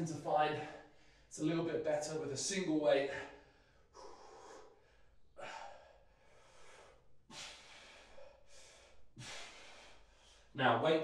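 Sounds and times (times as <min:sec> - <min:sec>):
man breathing hard: 0:00.6 - 0:01.3, 0:03.1 - 0:10.6.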